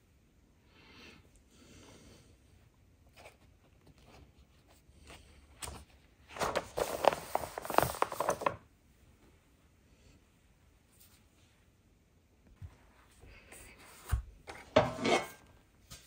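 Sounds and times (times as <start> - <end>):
paper page rustling: 3.1 - 8.6.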